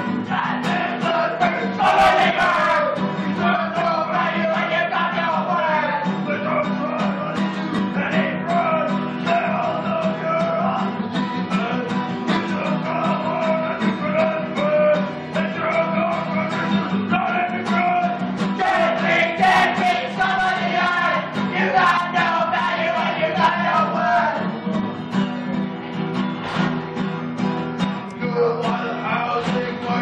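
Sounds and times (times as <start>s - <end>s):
person singing: 28.1s - 30.0s.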